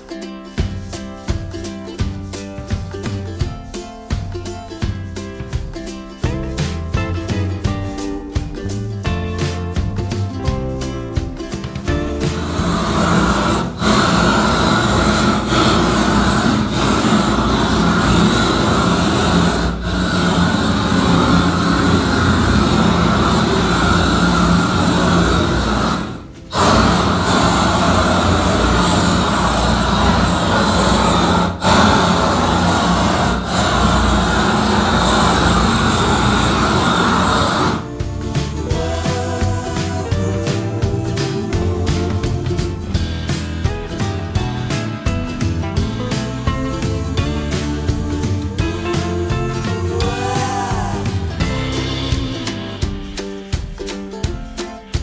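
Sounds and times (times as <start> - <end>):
music: 0.0 - 55.0
gas torch burning with loud rush: 12.3 - 41.6.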